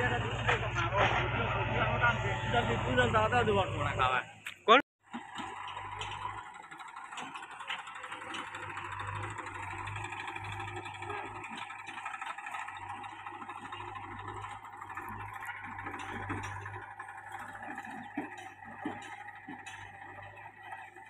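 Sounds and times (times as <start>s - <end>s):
tractor diesel engine running: 0.0s - 4.4s, 5.0s - 21.0s.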